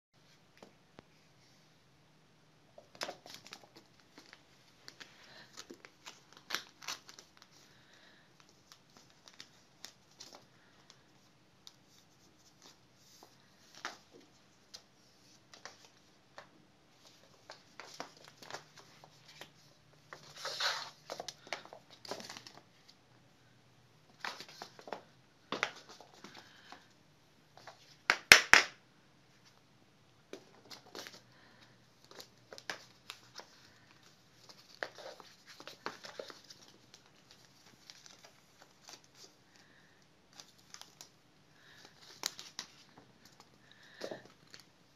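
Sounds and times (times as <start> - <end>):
paws tapping and scrabbling on floor: 2.8 - 7.1
paper tube toy crinkling: 2.8 - 10.9, 32.0 - 39.7.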